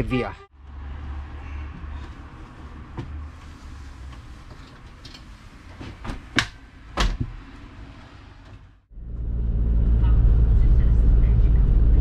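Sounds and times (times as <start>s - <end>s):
low steady rumble: 8.9s - 12.0s.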